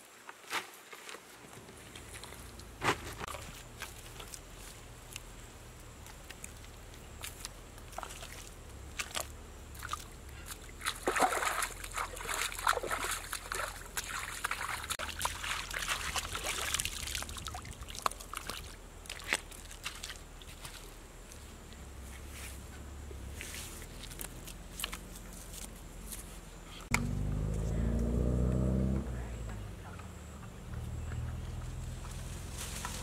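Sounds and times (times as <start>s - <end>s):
hands splashing in muddy water: 7.2s - 21.0s.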